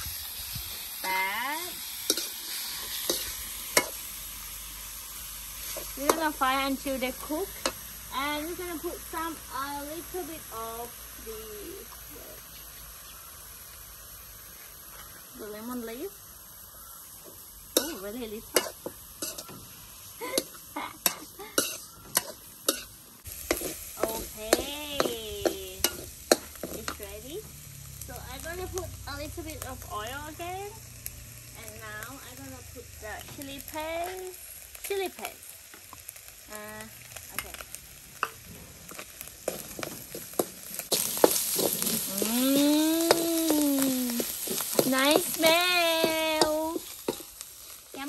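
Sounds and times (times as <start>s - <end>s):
oil sizzling: 0.0s - 48.0s
metal spatula scraping wok: 0.9s - 4.2s, 5.6s - 8.6s, 17.2s - 27.5s, 37.4s - 48.0s
metal spoon scraping pan: 2.1s - 4.0s, 17.8s - 19.5s, 20.3s - 27.0s, 39.4s - 42.3s.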